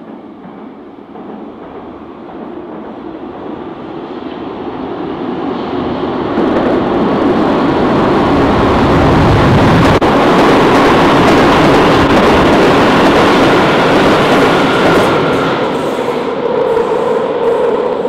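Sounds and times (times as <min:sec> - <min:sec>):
subway train passing in tunnel: 0:00.0 - 0:18.0.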